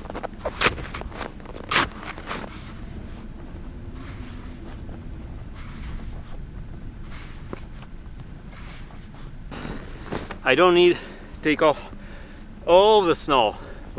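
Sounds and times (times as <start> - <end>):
snow shovel scraping snow: 0.0 - 6.4, 7.0 - 7.8, 8.5 - 11.1
wind rumbling on microphone: 0.0 - 13.9.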